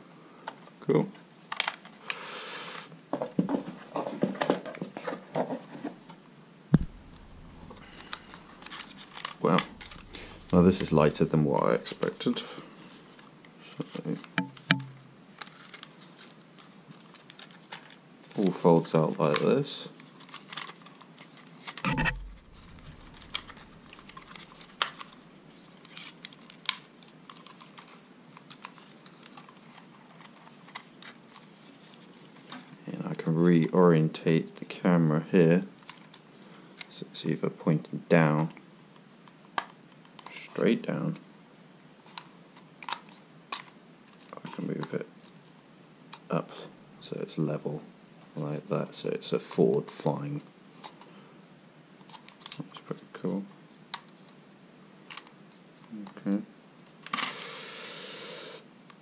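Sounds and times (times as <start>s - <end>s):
heavier knock: 6.8s - 11.3s, 21.9s - 24.3s
plastic rustle: 15.3s - 18.5s.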